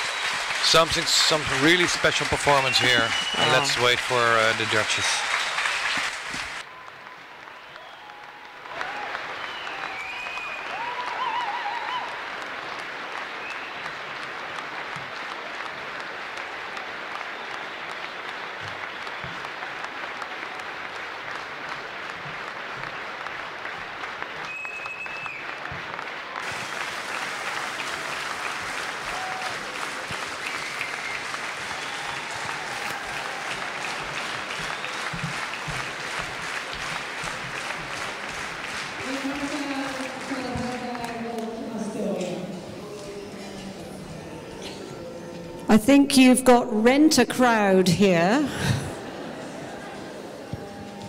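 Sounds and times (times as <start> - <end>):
cheers and whistles: 0.0 - 12.4, 13.0 - 14.3, 17.1 - 19.6, 24.4 - 36.3
audience applauding: 0.0 - 41.8.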